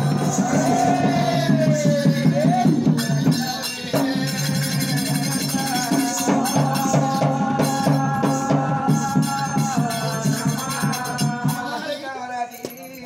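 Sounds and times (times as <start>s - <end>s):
fast drum beat: 0.0s - 11.9s
metallic jingling: 9.4s - 13.0s.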